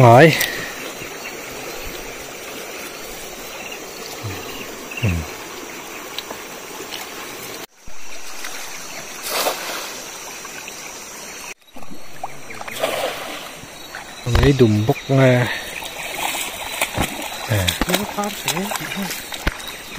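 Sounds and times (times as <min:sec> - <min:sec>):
shallow river flowing over stones: 0:00.1 - 0:14.3, 0:15.2 - 0:19.9
cast net splashing on water: 0:08.2 - 0:10.6, 0:12.2 - 0:13.6, 0:15.6 - 0:19.9.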